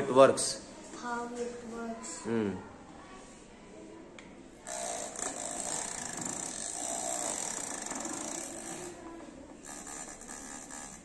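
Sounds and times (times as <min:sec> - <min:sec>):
small vacuum motor whirring: 0:04.7 - 0:09.0, 0:09.6 - 0:11.0.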